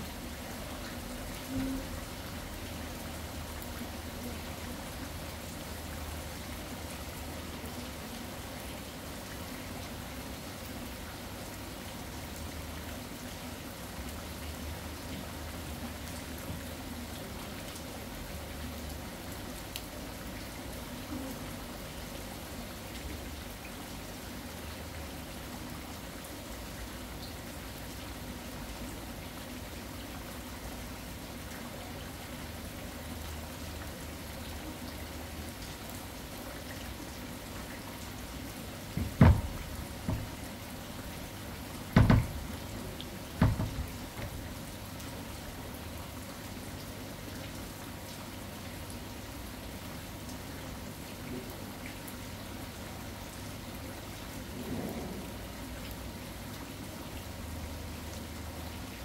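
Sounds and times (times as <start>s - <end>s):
steady rain falling: 0.0s - 59.0s
raindrops ticking: 38.9s - 45.6s
low uneven rumble: 54.4s - 55.8s.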